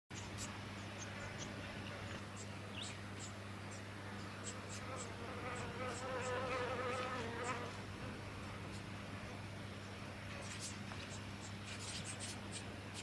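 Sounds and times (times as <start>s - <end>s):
flying insect buzzing: 4.4s - 8.2s
nestlings begging chips: 10.4s - 13.0s.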